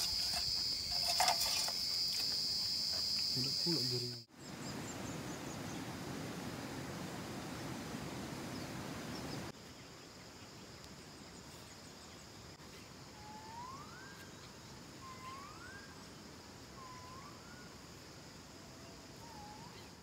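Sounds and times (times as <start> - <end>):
high insect drone: 0.0 - 20.0.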